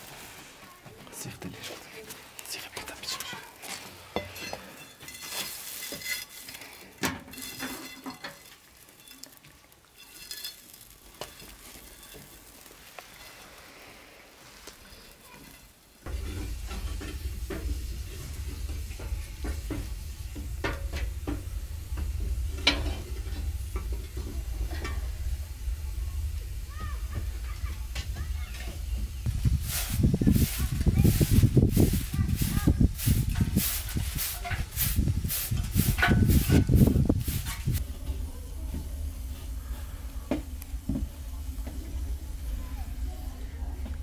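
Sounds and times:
food sizzling: 3.1s - 44.0s
utensils clinking: 4.1s - 13.6s
low rumble: 16.0s - 44.0s.

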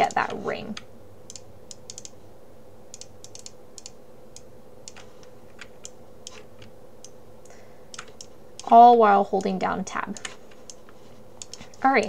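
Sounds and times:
faint steady hum: 0.0s - 12.0s
mouse and keyboard clicks: 1.3s - 2.2s, 3.0s - 4.0s, 4.9s - 7.2s, 7.9s - 8.7s, 10.2s - 11.8s.

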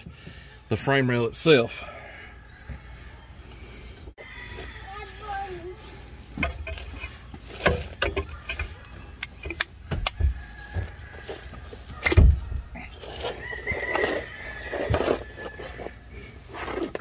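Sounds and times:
irregular knocks and clunks: 9.4s - 11.0s.

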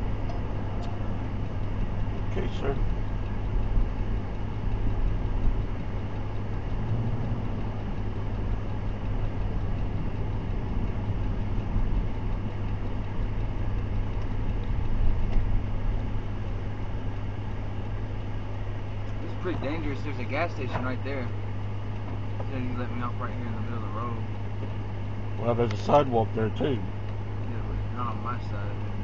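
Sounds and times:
engine hum inside vehicle: 0.0s - 29.0s.

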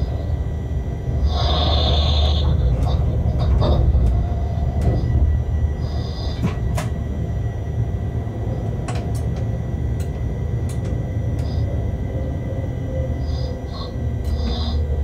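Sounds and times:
locomotive rumbling: 0.0s - 15.0s.

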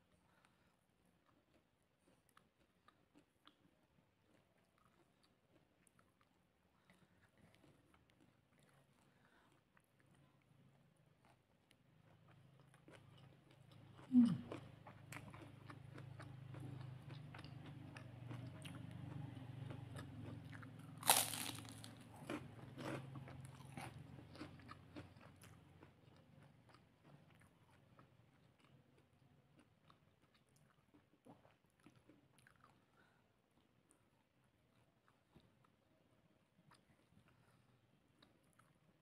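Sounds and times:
person chewing: 0.1s - 33.2s
crunching cracker: 20.2s - 25.4s.

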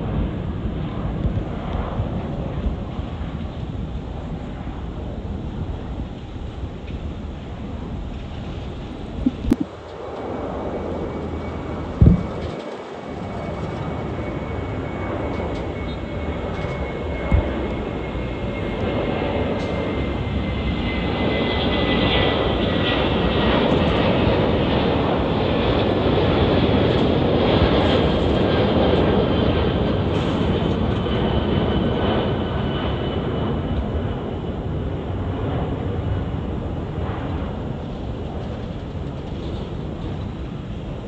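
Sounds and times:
faint engine whine: 0.0s - 41.0s
jet engines roaring: 0.0s - 41.0s.

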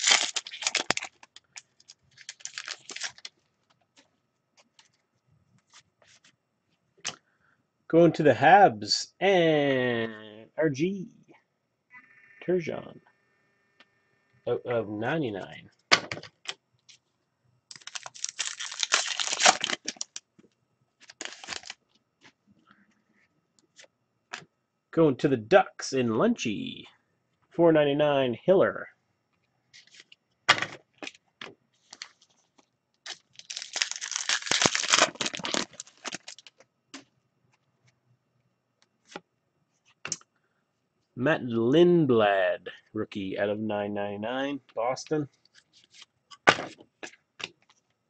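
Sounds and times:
wrapper crinkling and tearing: 0.0s - 3.4s, 17.7s - 20.2s, 21.0s - 21.8s, 31.8s - 32.3s, 33.0s - 36.6s.

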